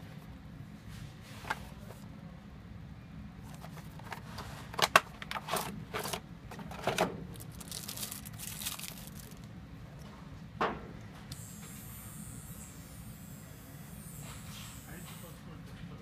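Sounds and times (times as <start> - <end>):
plastic wrap crinkling: 7.3 - 9.5.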